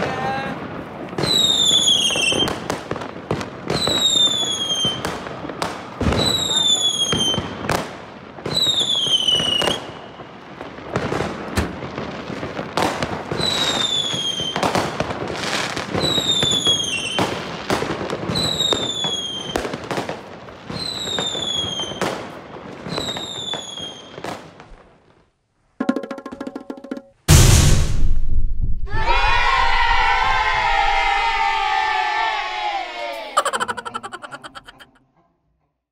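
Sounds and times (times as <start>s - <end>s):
firework bangs: 0.0s - 24.7s
firework crackling: 0.0s - 25.3s
whistling fireworks: 0.0s - 25.3s.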